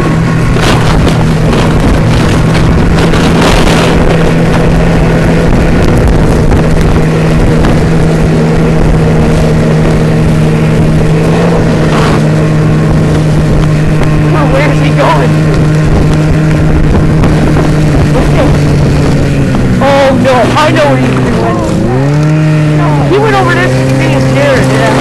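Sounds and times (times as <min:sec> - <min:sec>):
snowmobile engine running: 0:00.0 - 0:25.0
wind rushing over microphone: 0:00.0 - 0:25.0.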